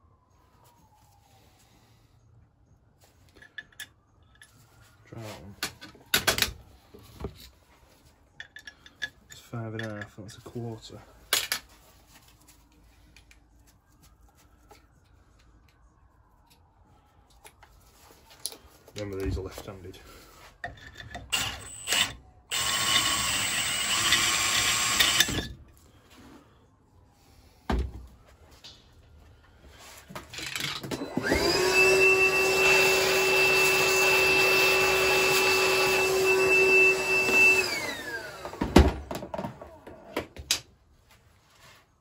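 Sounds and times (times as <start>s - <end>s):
vacuum cleaner whining: 21.3s - 25.4s, 30.8s - 40.1s
cordless drill drilling: 21.3s - 25.5s, 30.9s - 38.9s.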